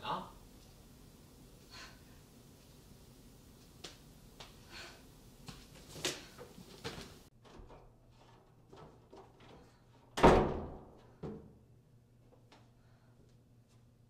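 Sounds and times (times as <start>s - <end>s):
footsteps: 2.4s - 7.3s
door slamming: 10.2s - 10.9s.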